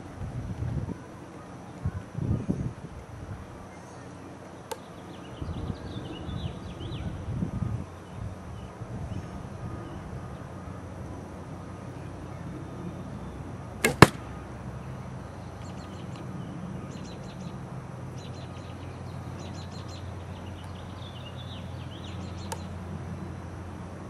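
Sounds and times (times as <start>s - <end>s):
arrow striking armour: 13.8s - 14.3s.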